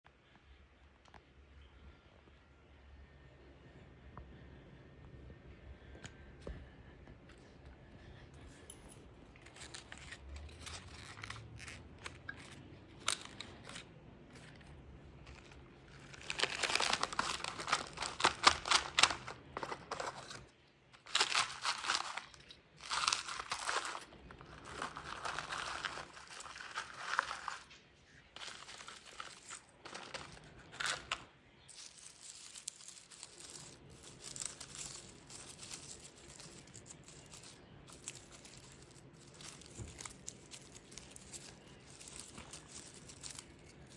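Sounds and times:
plastic pot crackling: 9.5 - 43.9.

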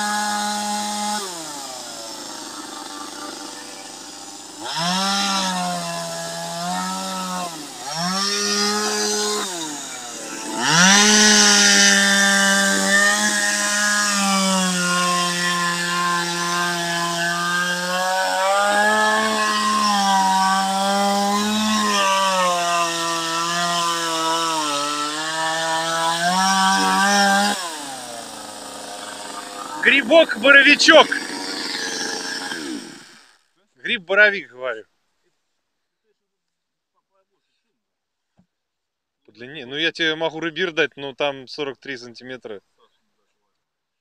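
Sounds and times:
chainsaw cutting log: 0.0 - 33.5.

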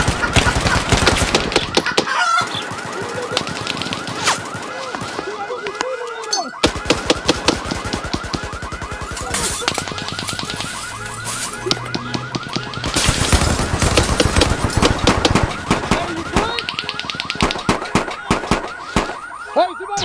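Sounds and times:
rapid gunfire sound effects: 0.0 - 5.7, 6.6 - 19.4
fast-repeating electronic alarm tone: 0.0 - 20.0.

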